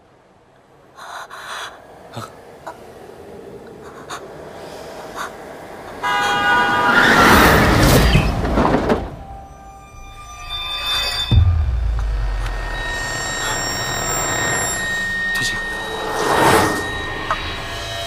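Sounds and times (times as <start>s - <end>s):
car horn blast: 6.0s - 7.6s
loud rushing noise: 10.9s - 18.0s.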